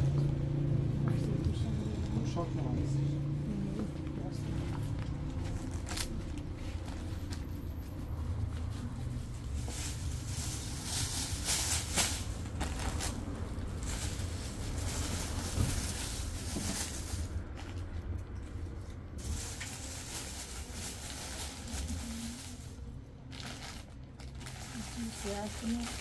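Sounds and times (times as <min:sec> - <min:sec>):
plastic bag rustling: 0:08.6 - 0:18.1, 0:19.1 - 0:26.0.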